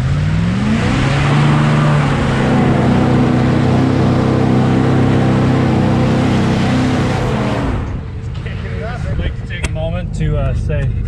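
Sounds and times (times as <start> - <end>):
pickup engine at high revs: 0.0 - 8.6.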